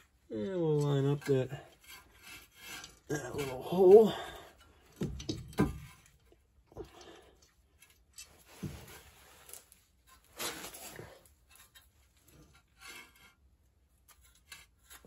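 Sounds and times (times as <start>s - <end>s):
light metal taps and scrapes: 4.5s - 15.0s
scraping rustle: 7.7s - 15.0s.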